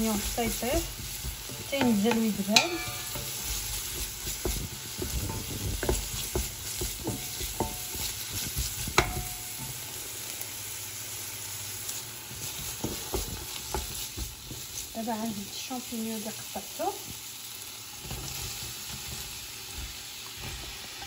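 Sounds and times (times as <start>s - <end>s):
wooden spatula scraping pot: 0.0s - 9.8s, 12.4s - 15.0s
onions sizzling in oil: 0.0s - 21.0s.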